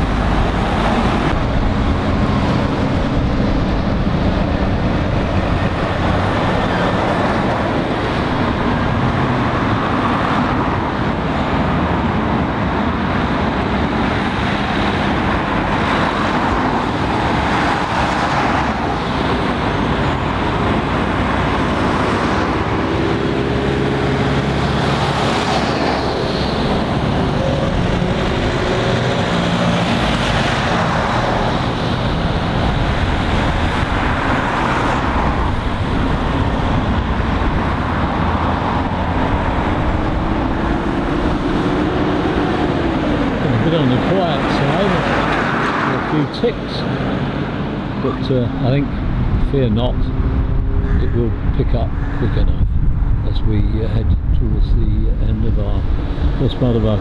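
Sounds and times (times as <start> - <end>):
lorry passing: 0.0 - 12.0, 13.2 - 52.0
cars passing: 0.0 - 57.0.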